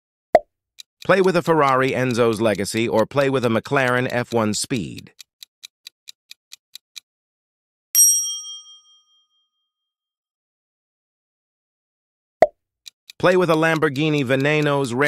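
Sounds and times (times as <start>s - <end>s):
fast clock ticks: 1.0s - 7.1s, 12.8s - 15.0s
bright bell ding: 8.0s - 9.4s.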